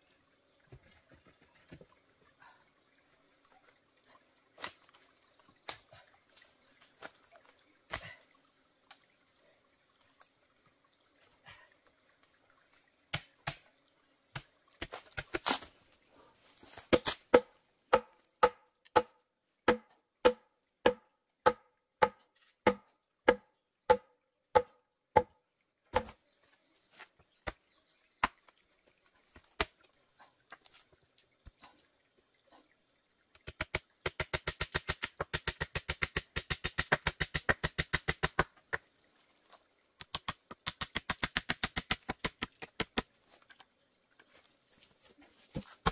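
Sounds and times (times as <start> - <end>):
hollow bamboo being struck: 16.8 - 26.2.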